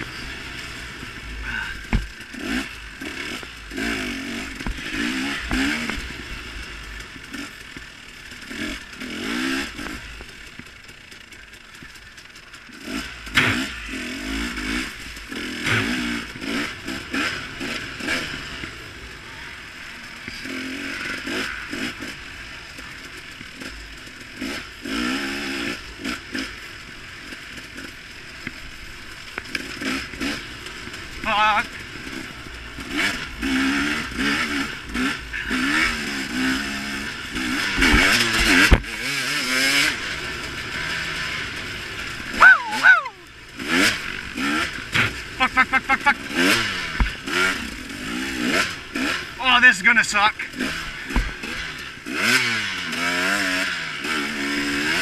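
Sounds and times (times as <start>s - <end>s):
dirt bike engine revving: 0.0s - 55.0s
bike knocks and rattles: 1.8s - 2.6s, 4.5s - 6.1s, 37.6s - 39.2s, 46.9s - 47.5s, 50.6s - 51.8s.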